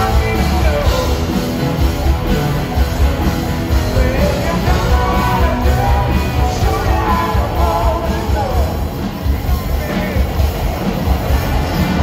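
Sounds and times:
man singing: 0.0 - 1.7, 3.7 - 10.4
bass guitar: 0.0 - 12.0
distorted electric guitar: 0.0 - 12.0
drums: 0.0 - 12.0.

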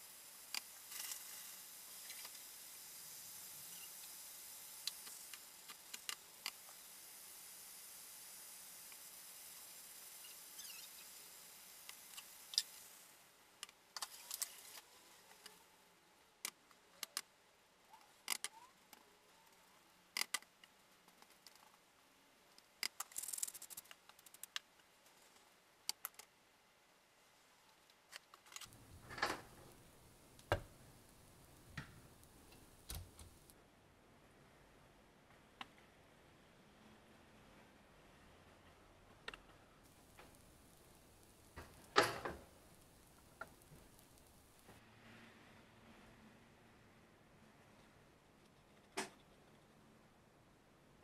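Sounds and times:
faint sizzle in frying pan: 0.0 - 13.4, 39.8 - 44.8.

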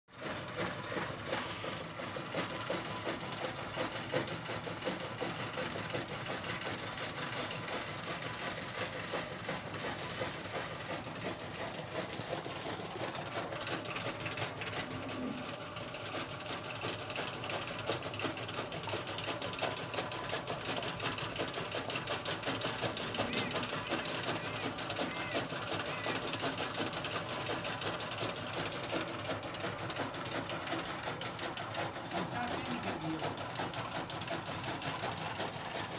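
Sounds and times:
rabbits chewing greens: 8.2 - 30.8.

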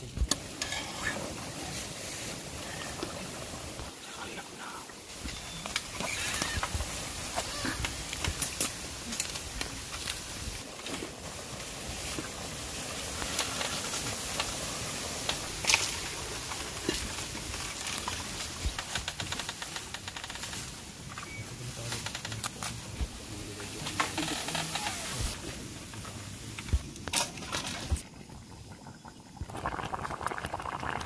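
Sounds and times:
steady hiss: 0.0 - 27.2.

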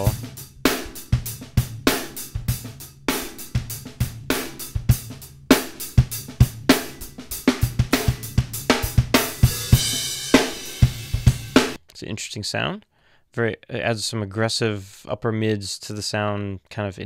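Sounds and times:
drum kit beat: 0.0 - 11.8.

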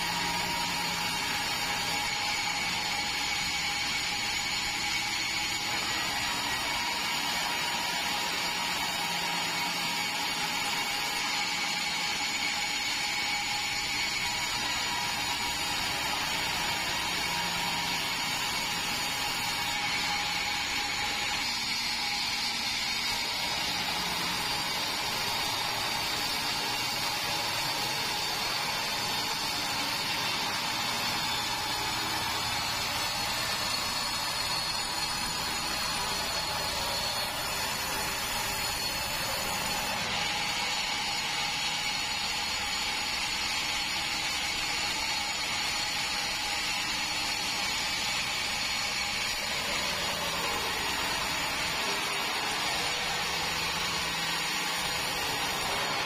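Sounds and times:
band saw sawing a log: 0.0 - 56.0.

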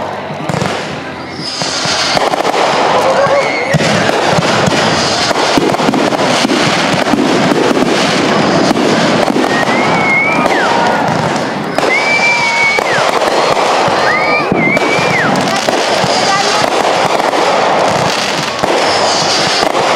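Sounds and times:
fireworks crackling and popping: 0.0 - 19.9.

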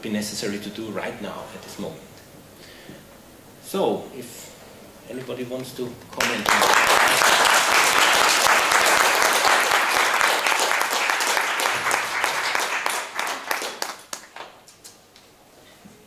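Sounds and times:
audience applauding: 6.2 - 14.8.

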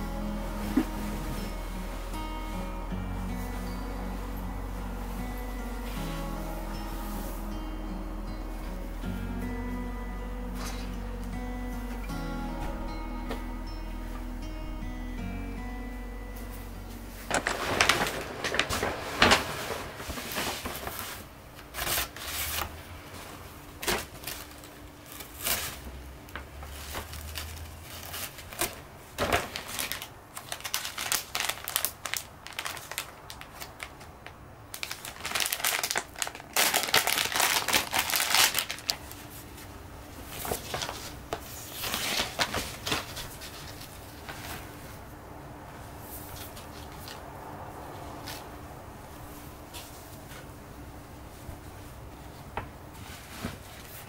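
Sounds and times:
paper bag crinkling and rustling: 0.0 - 7.6, 16.9 - 45.1, 52.4 - 54.0.

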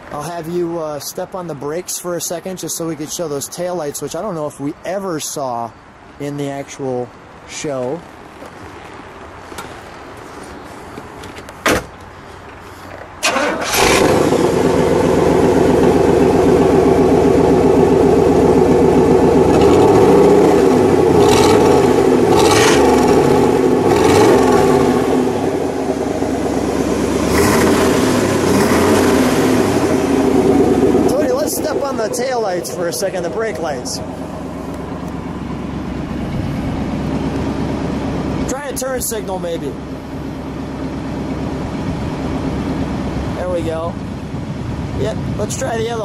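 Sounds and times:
loud car engine idling: 13.2 - 45.0.

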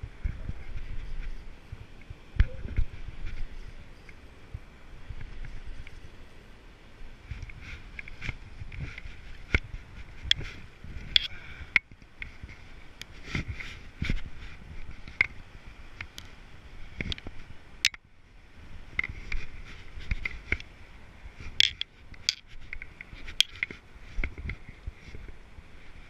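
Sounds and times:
clicks and taps handling fishing reel: 21.6 - 24.6.

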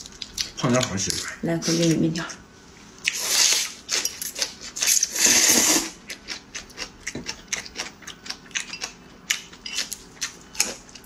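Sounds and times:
wet chewing clicks: 6.1 - 11.0.

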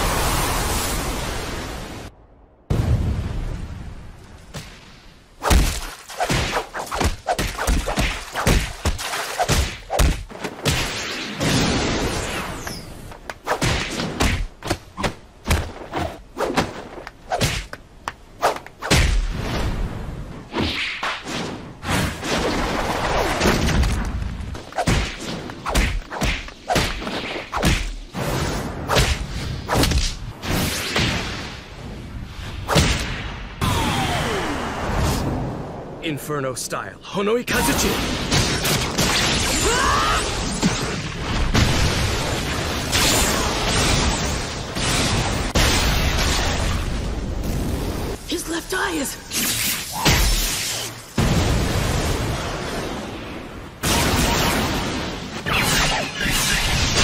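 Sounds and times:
punch and kick impacts: 5.4 - 11.8, 13.6 - 15.8, 24.6 - 28.0.

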